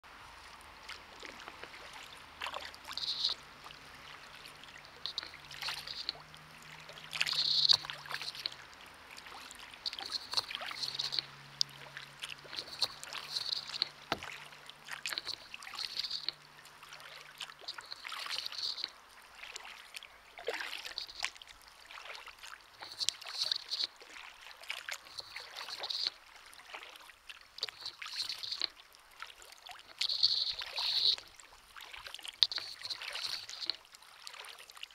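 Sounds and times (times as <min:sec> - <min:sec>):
kayak paddle strokes in water: 0:00.1 - 0:34.9
water dripping off paddle: 0:00.4 - 0:34.9.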